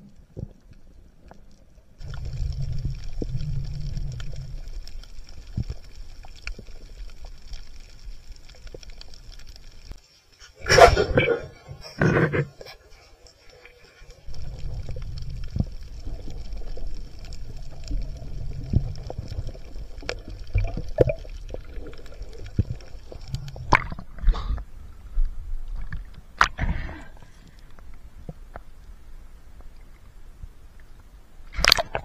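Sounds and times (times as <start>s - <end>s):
water rushing underwater: 2.0s - 10.0s, 10.6s - 11.9s, 13.3s - 27.4s
water splashes: 12.8s - 24.6s.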